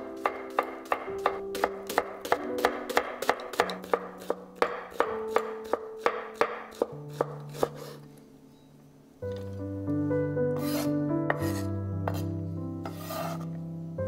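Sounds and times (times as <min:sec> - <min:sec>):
knife chopping on wooden board: 0:00.2 - 0:08.0, 0:10.6 - 0:12.3.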